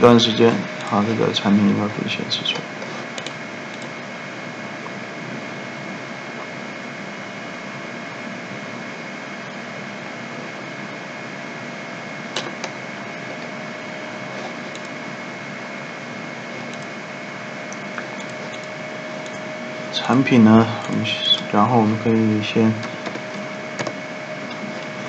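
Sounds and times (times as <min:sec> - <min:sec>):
faint steady tones: 0:00.0 - 0:25.0.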